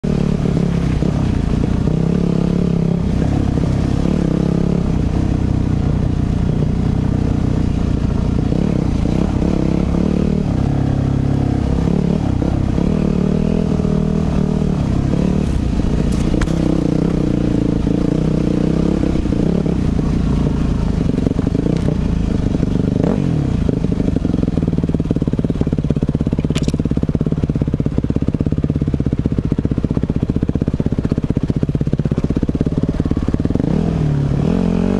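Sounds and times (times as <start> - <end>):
dirt bike engine revving: 0.0 - 25.3, 32.5 - 34.9.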